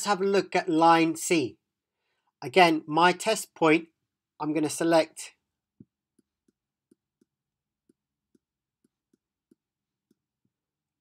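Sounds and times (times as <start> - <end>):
stylus tapping on drawing tablet: 5.7 - 10.6.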